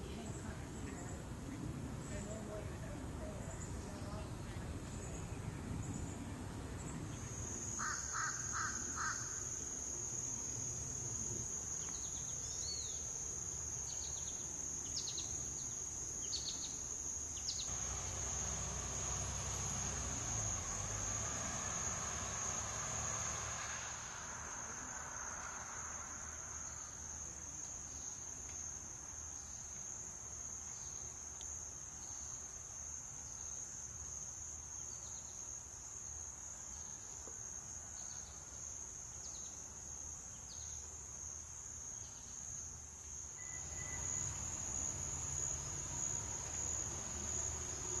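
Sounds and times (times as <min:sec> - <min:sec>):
insect high-pitched note: 0:43.4 - 0:47.6.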